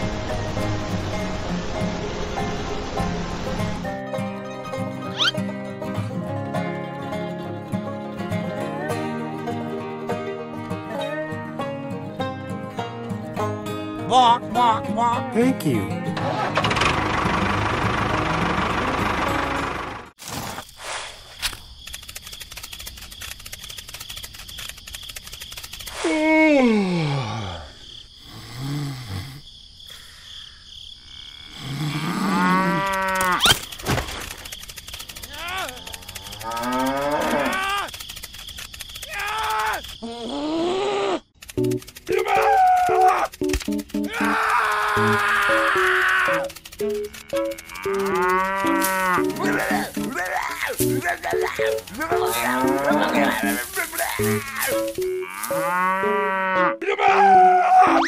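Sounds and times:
cow mooing: 31.9s - 33.4s, 35.5s - 37.7s, 44.2s - 56.8s
light background music: 43.4s - 44.4s, 50.8s - 56.8s.

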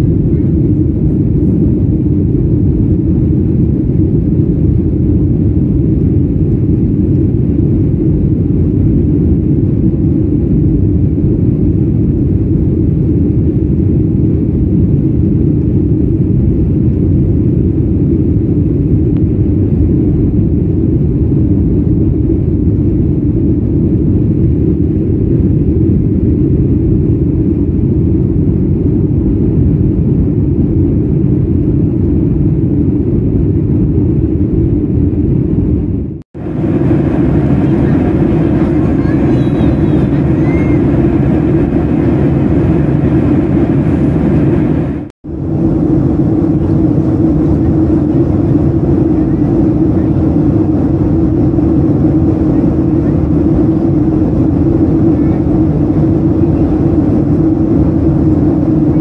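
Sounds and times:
jet engines at climb power: 0.0s - 59.0s
air rushing past fuselage: 33.5s - 59.0s.

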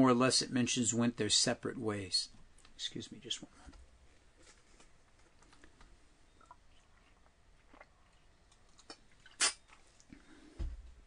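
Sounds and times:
drinking mouth sounds: 6.3s - 10.3s.

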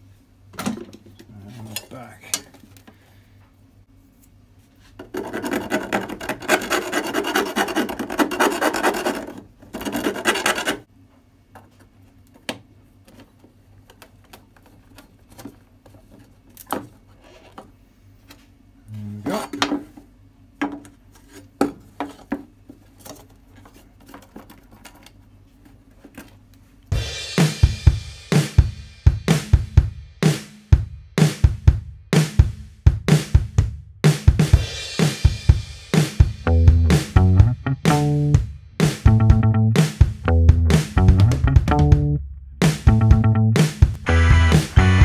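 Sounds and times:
file rasping on steel: 5.0s - 10.8s.

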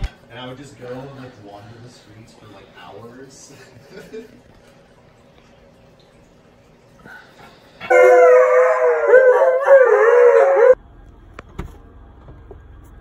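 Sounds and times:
overlapping howling voices: 7.9s - 10.8s.

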